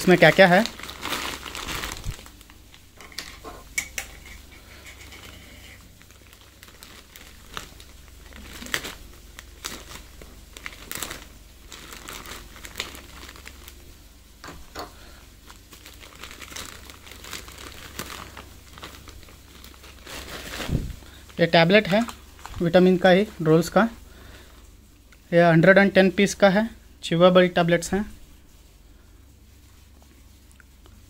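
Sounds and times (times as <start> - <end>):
plastic bag crinkling: 0.0 - 3.7, 4.7 - 24.0.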